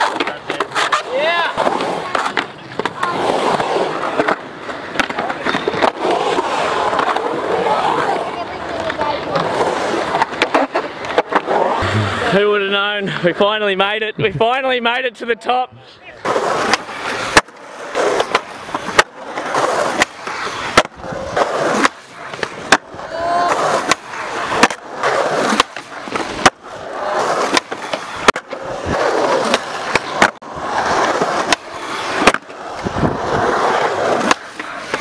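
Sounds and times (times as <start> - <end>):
skateboard wooden clacks: 0.0 - 6.1, 8.6 - 12.2, 16.2 - 26.6, 27.2 - 30.5, 31.1 - 35.0
skateboard wheels rolling on concrete: 0.0 - 35.0.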